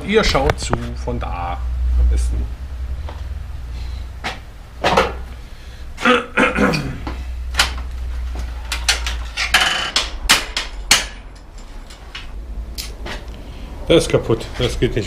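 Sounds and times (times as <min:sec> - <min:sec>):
steady low hum: 0:00.0 - 0:15.0
metal tools knocking and clanking: 0:08.6 - 0:12.3.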